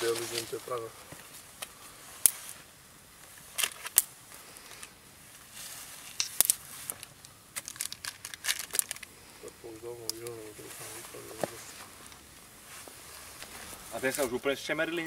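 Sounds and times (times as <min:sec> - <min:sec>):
faint hiss: 0:00.0 - 0:15.0
log fire popping and crackling: 0:00.0 - 0:15.0.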